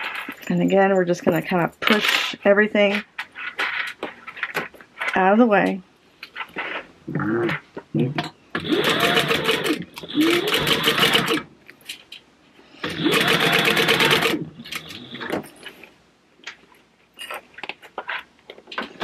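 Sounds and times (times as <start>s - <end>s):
industrial sewing machine stitching: 8.6s - 11.5s, 12.8s - 15.3s.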